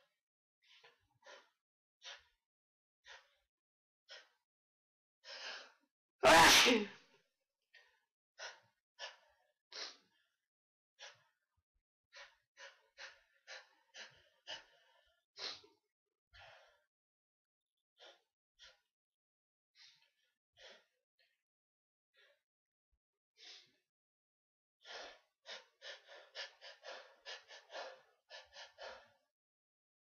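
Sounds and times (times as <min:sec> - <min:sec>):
person sneezing: 0:06.2 - 0:06.9.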